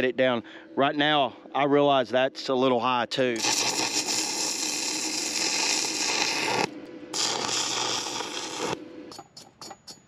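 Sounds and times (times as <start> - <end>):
welding arc crackling: 3.4 - 9.8.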